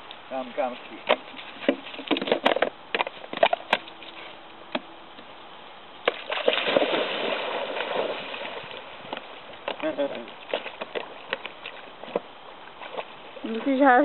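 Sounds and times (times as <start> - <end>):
dog splashing into water: 6.0 - 11.0
dog swimming splashing: 6.2 - 12.0.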